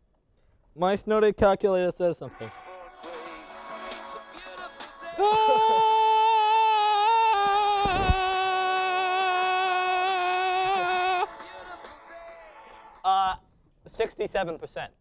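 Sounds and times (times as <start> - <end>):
person singing a long note: 2.4 - 11.3.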